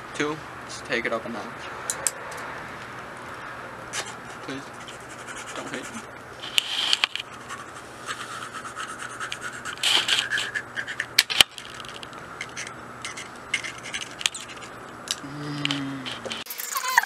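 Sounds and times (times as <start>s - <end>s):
scratchy rustling: 4.0s - 14.9s.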